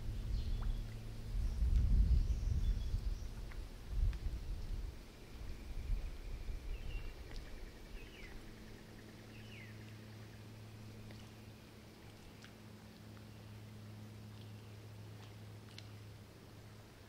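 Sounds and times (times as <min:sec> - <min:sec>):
uneven low rumble: 0:00.0 - 0:11.5
faint low hum: 0:00.0 - 0:17.0
bird chirping: 0:05.5 - 0:10.4.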